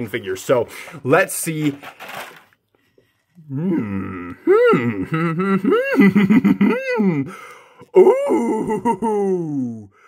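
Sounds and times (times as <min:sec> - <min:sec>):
man groaning and moaning: 0:03.4 - 0:10.0.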